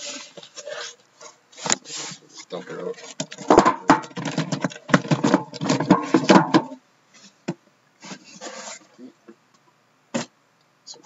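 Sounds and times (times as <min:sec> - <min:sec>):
cardboard scraping and rustling: 0:00.0 - 0:07.4, 0:08.0 - 0:09.0.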